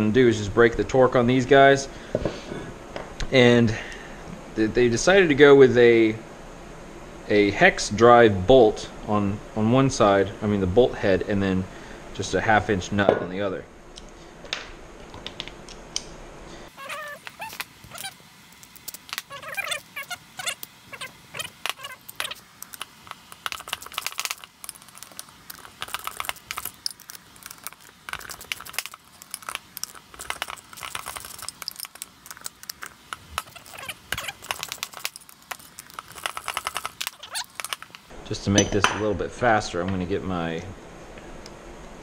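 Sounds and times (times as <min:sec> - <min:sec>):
metal hand tools clinking: 0:23.4 - 0:38.0.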